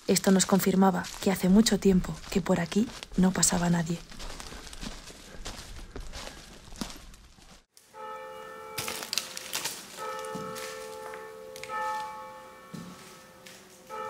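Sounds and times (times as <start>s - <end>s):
footsteps crunching on dry leaves: 0.0s - 14.0s
bell ringing: 7.9s - 14.0s.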